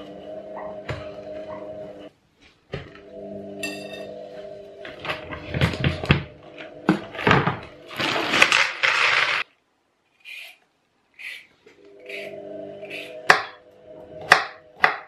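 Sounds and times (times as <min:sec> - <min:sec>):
low hum: 0:00.0 - 0:02.1, 0:02.8 - 0:08.4, 0:11.6 - 0:14.8
plastic bag crinkling: 0:07.8 - 0:09.5.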